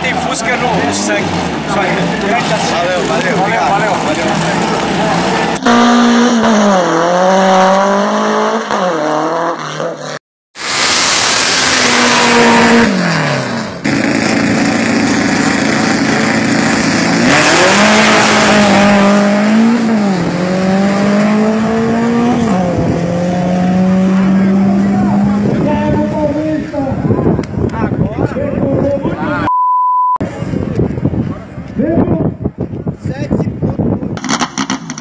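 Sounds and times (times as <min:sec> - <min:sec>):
car engine revving hard: 0:00.0 - 0:26.3, 0:34.2 - 0:35.0.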